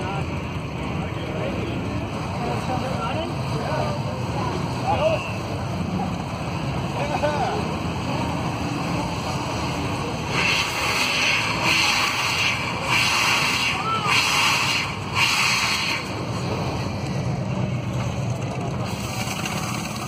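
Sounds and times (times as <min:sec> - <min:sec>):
steam hissing bursts: 0:10.3 - 0:16.3.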